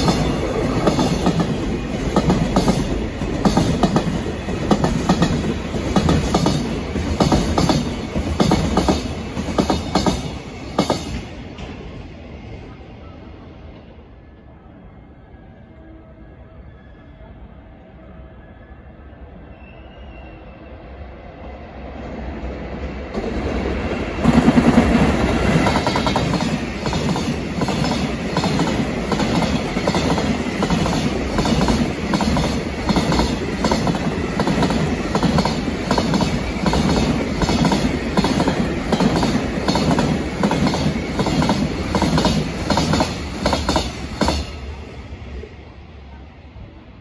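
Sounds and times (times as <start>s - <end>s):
electric locomotive passing: 0.0s - 47.0s.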